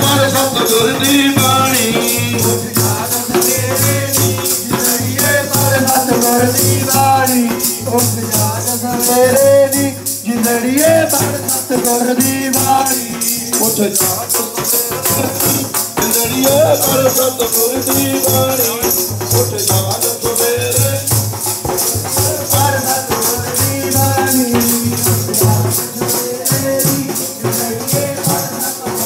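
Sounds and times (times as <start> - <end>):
jingling shaker percussion: 0.0 - 29.0
people singing a hymn: 0.0 - 29.0.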